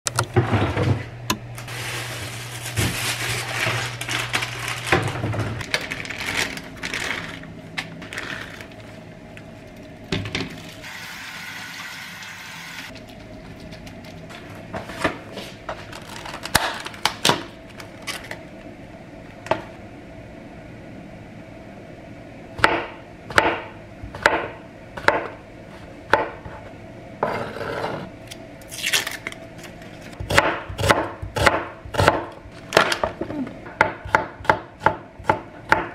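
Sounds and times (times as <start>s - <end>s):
groceries handled: 1.5s - 10.8s, 12.9s - 18.5s
tap water running into colander: 10.8s - 12.9s.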